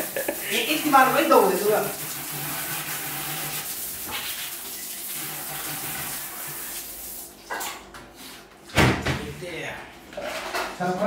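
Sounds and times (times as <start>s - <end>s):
bidet sprayer hissing: 0.0s - 4.2s.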